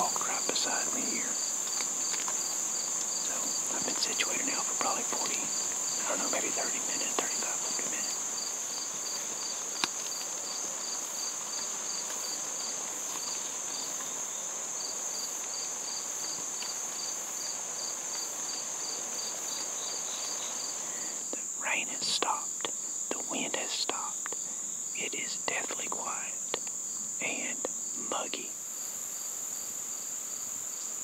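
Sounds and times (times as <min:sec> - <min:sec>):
faint rustle: 0:00.0 - 0:30.9
cricket chirping: 0:00.0 - 0:31.0.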